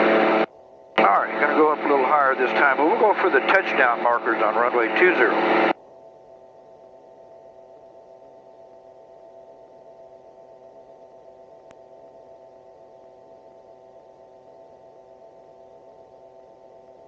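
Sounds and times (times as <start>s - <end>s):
aircraft engine and propeller drone: 0.0s - 5.8s.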